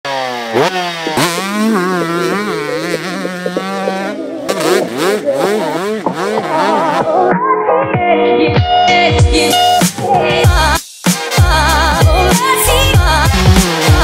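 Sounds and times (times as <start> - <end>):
motocross bike engine revving: 0.1 - 7.3, 11.6 - 14.0.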